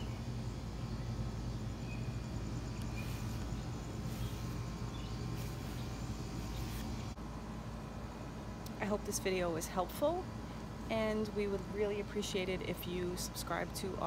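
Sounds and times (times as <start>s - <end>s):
faint bird chirps: 0.0s - 7.2s
low mechanical hum: 0.0s - 14.0s
light hiss: 2.2s - 7.2s.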